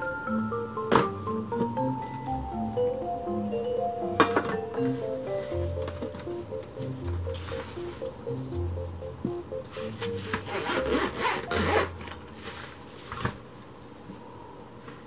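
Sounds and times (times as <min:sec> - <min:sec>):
light background music: 0:00.0 - 0:12.4
handling rustle: 0:09.7 - 0:13.6
zipper being pulled closed: 0:10.0 - 0:12.2.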